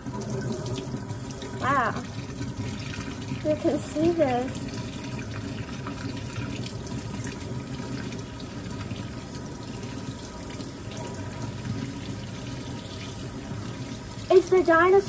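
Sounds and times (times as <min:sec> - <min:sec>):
faucet water running into sink: 0:00.0 - 0:15.0
water splashing over toy: 0:01.4 - 0:06.7.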